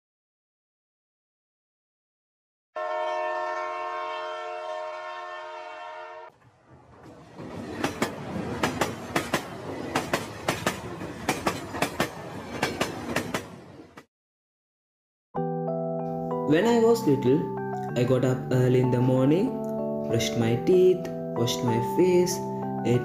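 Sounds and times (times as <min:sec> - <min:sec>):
train horn blast: 0:02.8 - 0:06.3
train wheels clicking over rail joints: 0:07.0 - 0:13.6.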